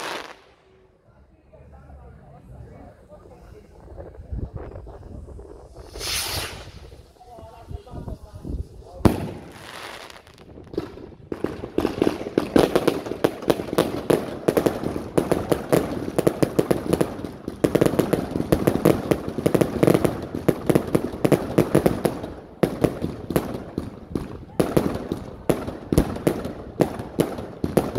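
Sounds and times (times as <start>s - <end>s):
firework crackling and popping: 0.0s - 0.6s, 3.7s - 27.9s
firework hiss: 0.0s - 0.6s, 3.8s - 25.4s
firework bang: 5.7s - 7.1s, 9.0s - 27.9s.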